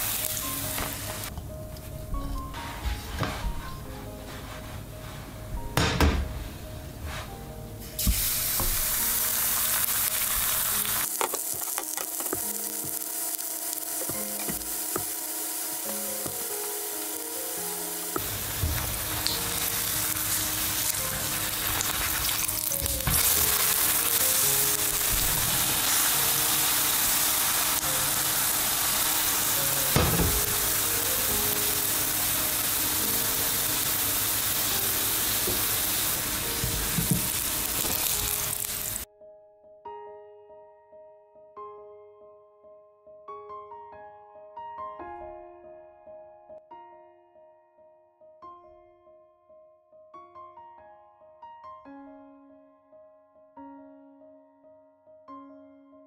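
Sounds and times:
batter sizzling in a pan: 0.0s - 1.3s, 8.0s - 39.1s.

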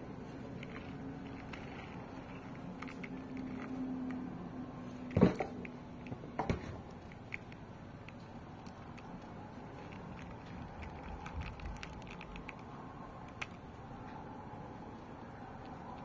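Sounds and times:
steady low hum: 0.0s - 16.0s
handling clicks and rustles: 0.2s - 14.2s.

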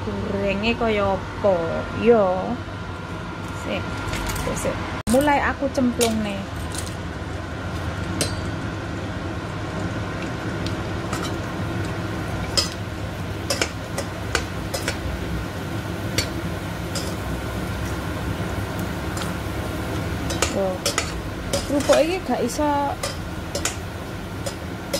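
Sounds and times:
cooker hood fan hum: 0.0s - 24.9s
crackers sizzling in hot oil: 6.3s - 24.9s
metal spatula clicking on pot: 13.5s - 15.0s, 20.3s - 22.2s, 23.0s - 23.8s.

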